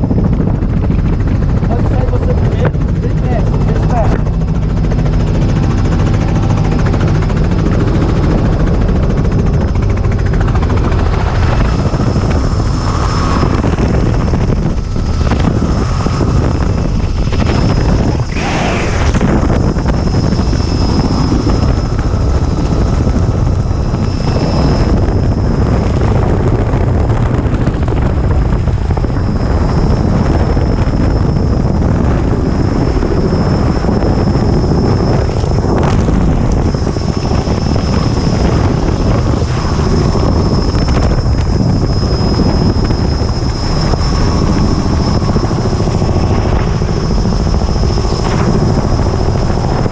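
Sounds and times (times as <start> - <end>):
helicopter rotor and engine: 0.0 - 49.9
air rushing: 10.1 - 49.9.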